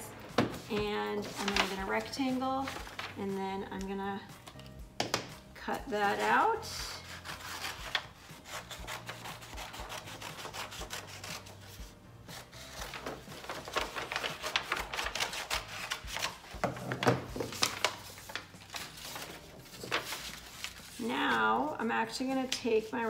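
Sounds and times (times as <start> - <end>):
paper rustling: 0.0 - 4.8, 7.0 - 23.0
scissors snipping paper: 7.0 - 11.6, 12.9 - 16.6.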